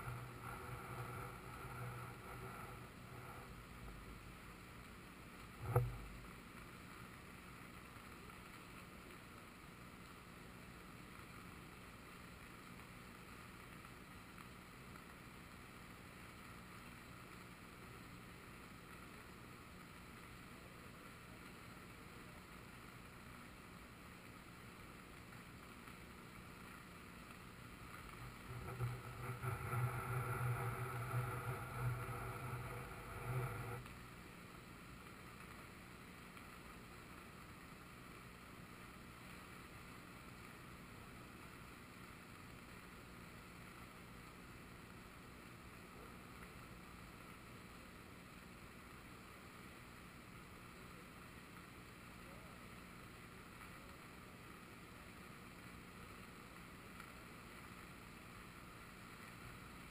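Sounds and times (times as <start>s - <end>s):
river rushing in flood: 0.0s - 6.8s, 27.4s - 37.1s
low hum with higher tones: 0.0s - 59.9s.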